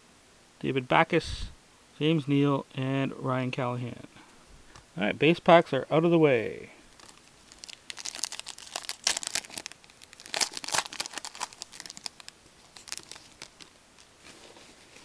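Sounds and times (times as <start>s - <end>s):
wrapper tearing and crinkling: 6.9s - 15.0s.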